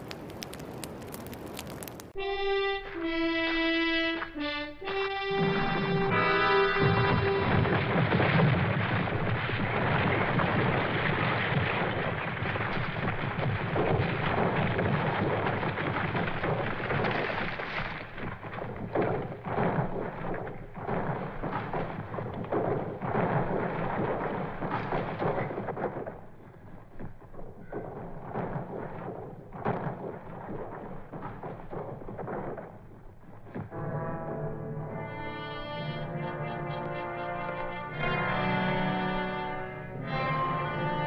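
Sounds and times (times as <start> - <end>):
rock impacts clattering: 0.0 - 2.2, 6.8 - 33.8
rumble of sliding rocks: 0.0 - 2.2, 6.8 - 33.8.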